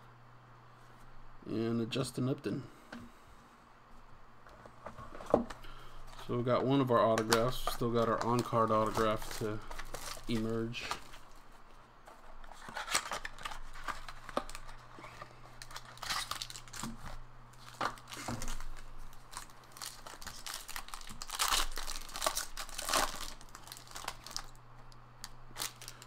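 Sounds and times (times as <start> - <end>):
wrapping being torn and crinkled: 6.1 - 26.0.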